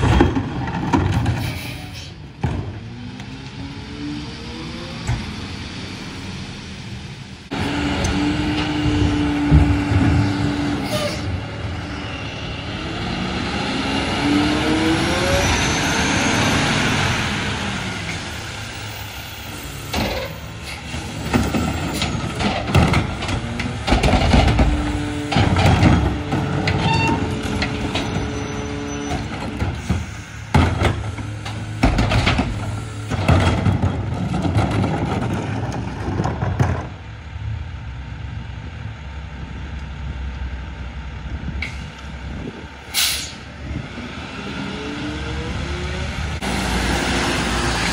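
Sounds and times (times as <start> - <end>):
carts knocking and banging: 0.0 - 2.9, 19.9 - 37.0
garbage truck engine: 0.0 - 47.9.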